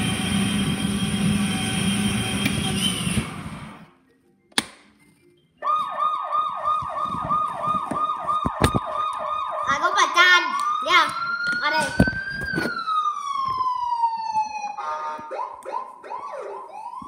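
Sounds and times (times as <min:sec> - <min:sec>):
electronic siren wailing: 0:05.6 - 0:17.0.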